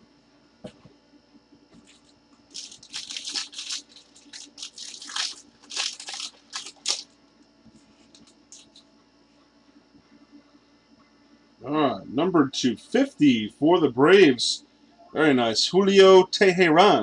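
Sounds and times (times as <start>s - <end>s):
foil wrapper crinkling: 1.8s - 7.2s, 8.0s - 8.8s.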